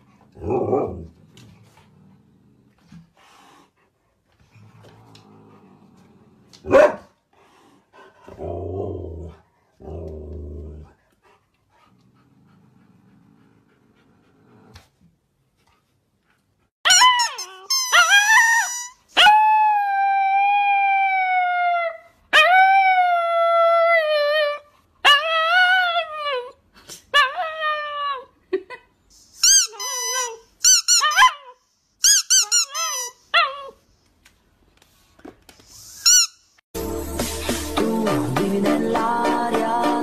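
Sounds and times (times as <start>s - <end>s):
rubber squeaky ball squeaking: 16.9s - 19.0s, 29.4s - 31.3s, 32.0s - 33.2s.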